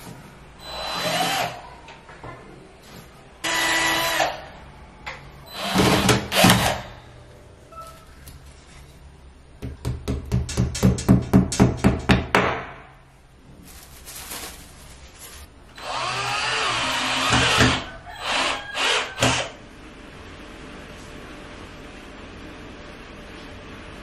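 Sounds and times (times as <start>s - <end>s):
power drill running: 5.5s - 7.0s, 15.8s - 19.6s.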